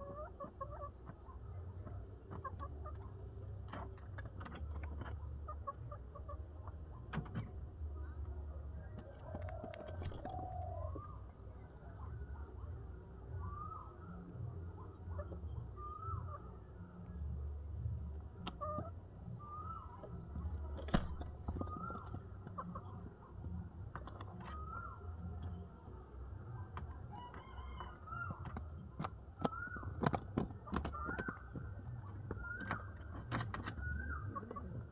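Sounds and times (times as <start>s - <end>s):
chicken clucking: 0.0s - 7.2s, 18.4s - 18.9s, 19.8s - 25.3s, 26.4s - 34.9s
pigeons cooing: 18.4s - 25.1s, 27.1s - 34.9s.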